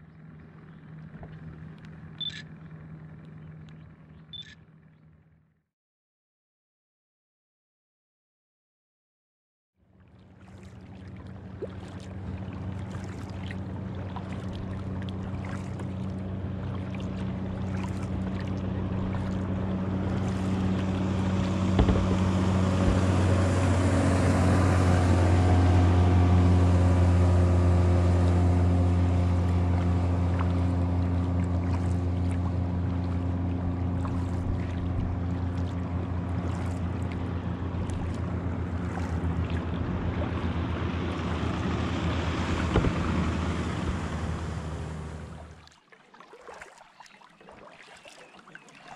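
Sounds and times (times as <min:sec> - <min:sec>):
outboard engine humming: 0:00.0 - 0:05.6, 0:09.8 - 0:48.9.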